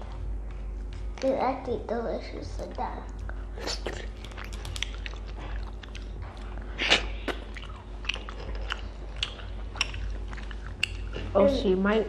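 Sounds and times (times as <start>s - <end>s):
chewing: 3.1s - 11.4s.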